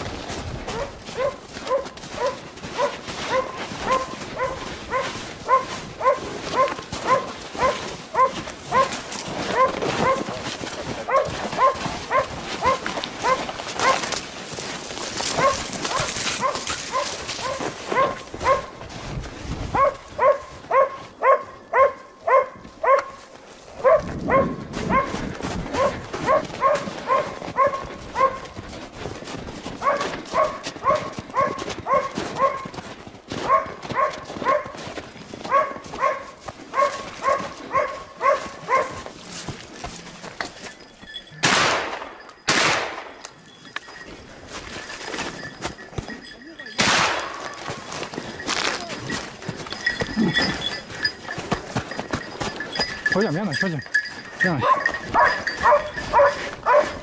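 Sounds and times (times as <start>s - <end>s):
dog barking: 0.7s - 10.4s, 11.0s - 14.2s, 15.2s - 18.8s, 19.7s - 28.6s, 29.8s - 32.8s, 33.4s - 39.1s, 54.5s - 57.0s.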